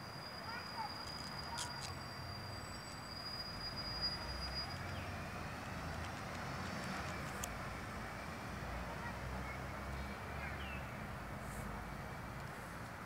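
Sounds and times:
thin steady high tone: 0.0 - 5.9.

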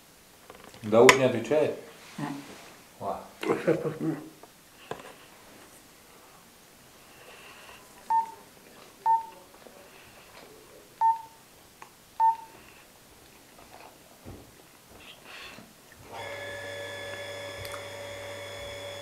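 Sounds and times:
phone keypad beeps: 8.1 - 8.4, 9.1 - 9.3, 11.0 - 11.4, 12.2 - 12.5.

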